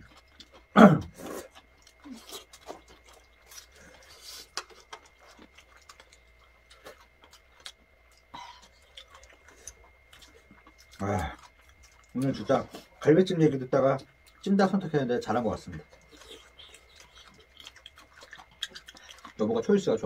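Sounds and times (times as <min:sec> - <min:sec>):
chewing and slurping: 0:00.0 - 0:20.0.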